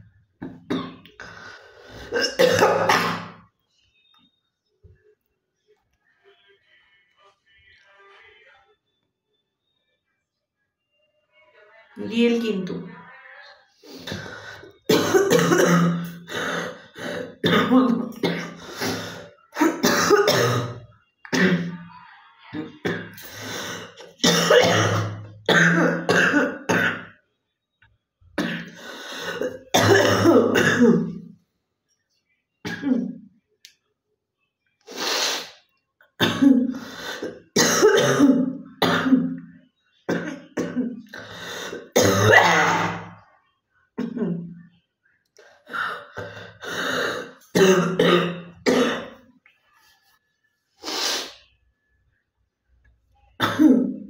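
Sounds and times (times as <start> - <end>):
woman coughing: 2.1 - 3.4, 14.9 - 21.8, 22.6 - 27.1, 28.4 - 31.2, 36.2 - 39.4, 40.1 - 43.1, 44.0 - 44.6, 45.9 - 49.2, 53.4 - 54.0.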